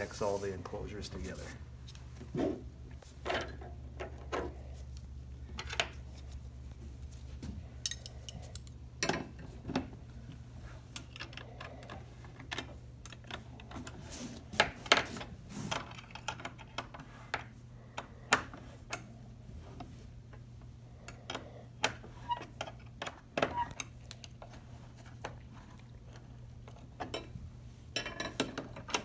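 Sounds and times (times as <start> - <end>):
hand tools clinking on metal bolts: 7.8 - 8.7.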